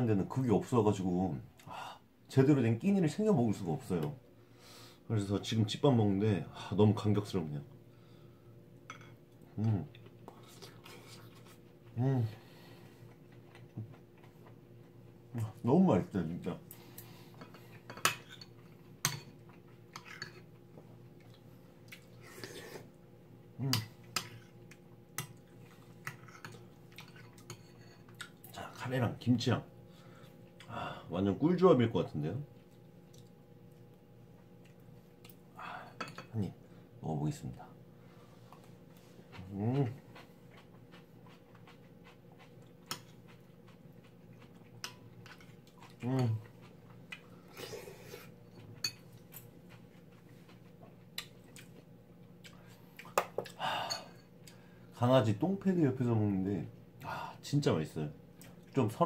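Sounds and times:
faint steady hum: 0:00.0 - 0:59.0
eating sound: 0:38.5 - 0:53.7.

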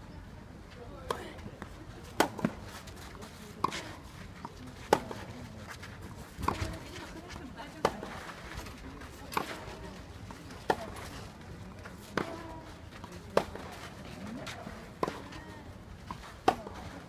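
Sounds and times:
tennis ball struck by rackets: 0:02.0 - 0:02.7, 0:16.1 - 0:16.9.

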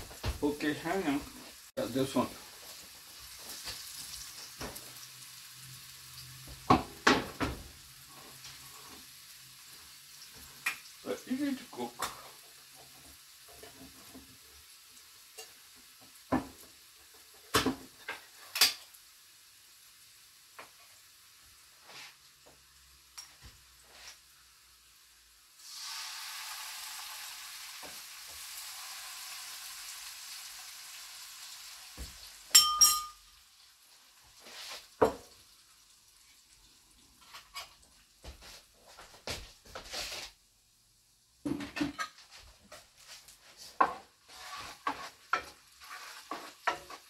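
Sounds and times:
food sizzling in frying pan: 0:00.0 - 0:47.0
jars and utensils clicking: 0:32.5 - 0:33.2
sharp clinks: 0:32.5 - 0:33.2.

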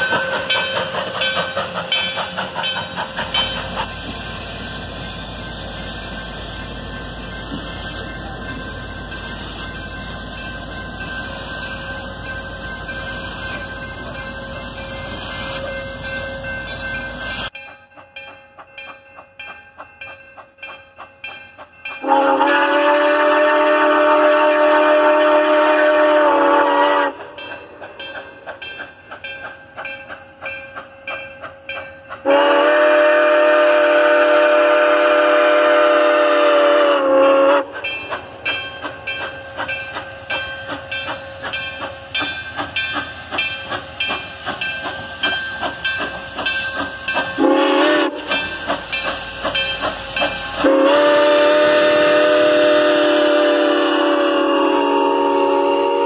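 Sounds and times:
locomotive bell clanging: 0:00.0 - 0:22.4, 0:27.3 - 0:32.4, 0:37.8 - 0:51.0
steam locomotive chime whistle: 0:00.0 - 0:56.0.

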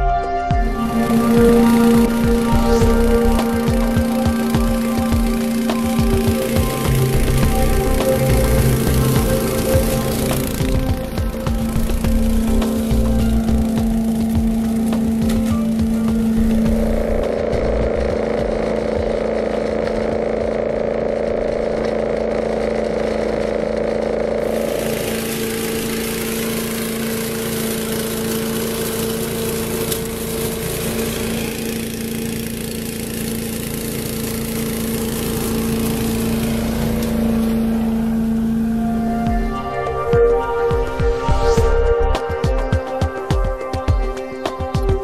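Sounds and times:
leaf vacuum engine drone: 0:00.0 - 0:45.0.

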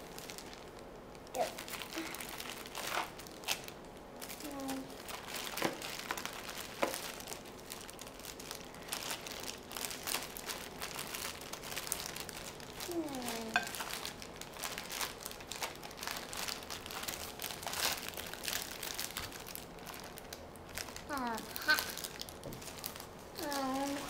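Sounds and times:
plastic bag crinkling: 0:00.0 - 0:24.0.

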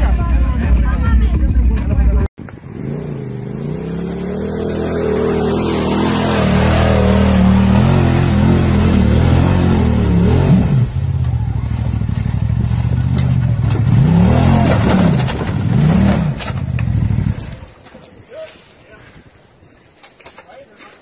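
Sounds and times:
utility vehicle engine revving: 0:02.4 - 0:17.8
vehicle revving climbing over rocks: 0:02.6 - 0:18.0.

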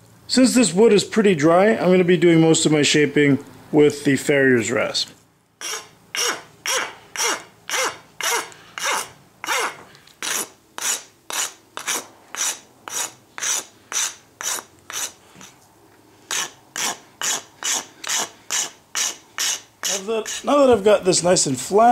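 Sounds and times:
rasp scraping wooden handle: 0:05.6 - 0:15.6, 0:16.3 - 0:20.7.

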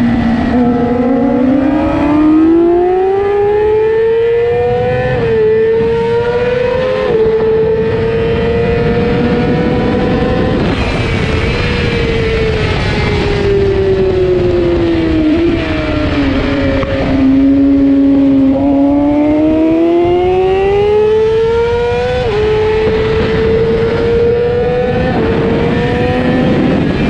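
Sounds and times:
racing motorcycle engine: 0:00.0 - 0:27.0.

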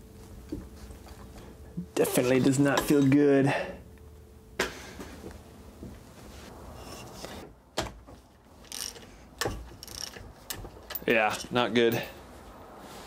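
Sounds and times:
ratchet wrench clicking: 0:08.6 - 0:11.1.

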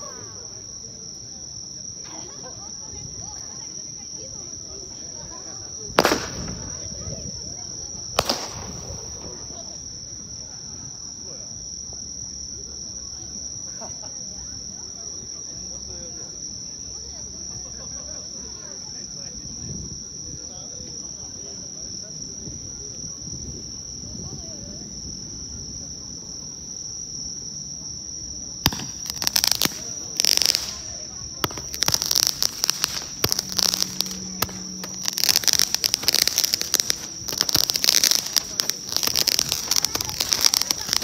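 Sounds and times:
crickets trilling: 0:00.0 - 0:41.0.

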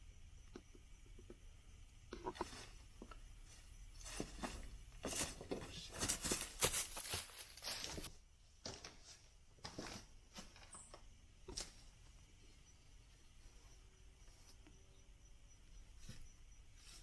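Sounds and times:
footsteps on dry leaves: 0:04.0 - 0:08.1.

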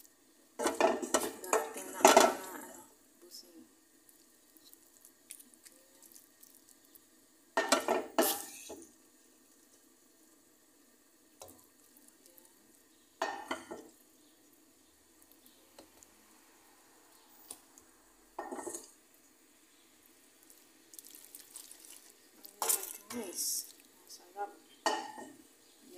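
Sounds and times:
faint steady background noise: 0:00.0 - 0:25.9
spatula scraping frying pan: 0:07.6 - 0:08.8.

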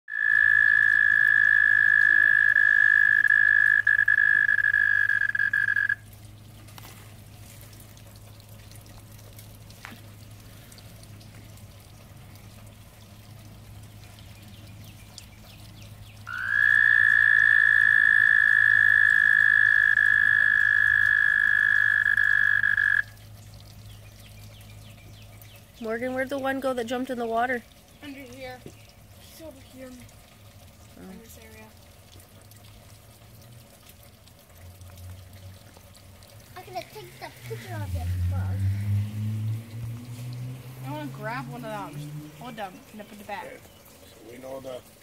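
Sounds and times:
toad trilling: 0:00.1 - 0:06.1, 0:16.3 - 0:23.2.

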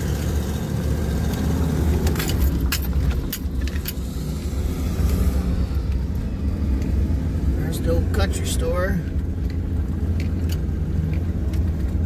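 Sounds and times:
vehicle engine rumble: 0:00.0 - 0:12.0
light clicks or rattles: 0:02.0 - 0:04.1, 0:09.2 - 0:12.0.

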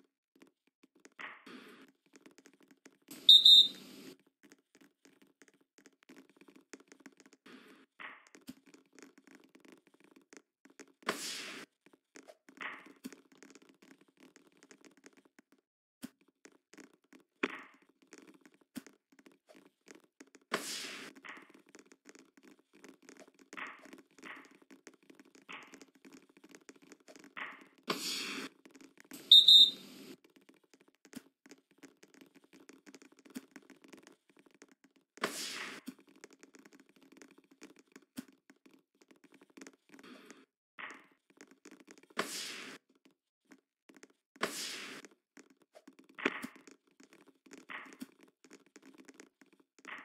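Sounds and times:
trilling referee's whistle: 0:03.3 - 0:03.8, 0:29.3 - 0:29.8.

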